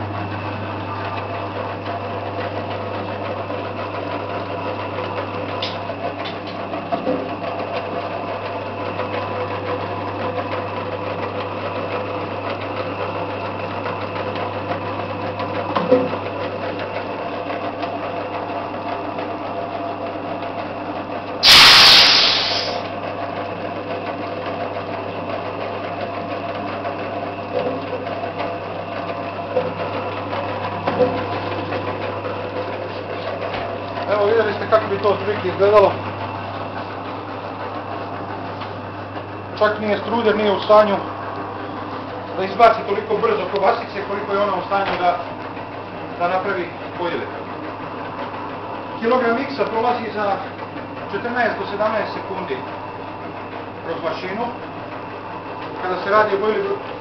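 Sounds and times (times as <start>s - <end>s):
bait rolling machine humming: 0.0s - 57.0s
loud rushing burst: 21.4s - 22.8s.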